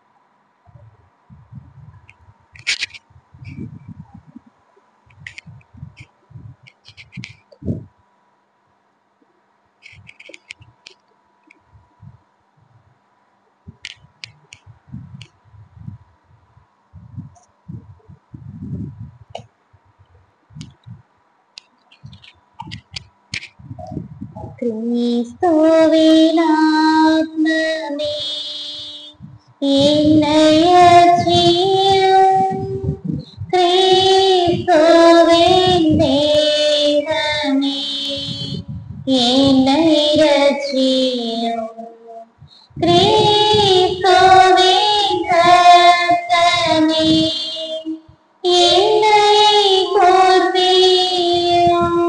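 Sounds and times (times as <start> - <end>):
high voice singing a hymn: 22.1 - 52.0
singer breathing: 42.4 - 42.8.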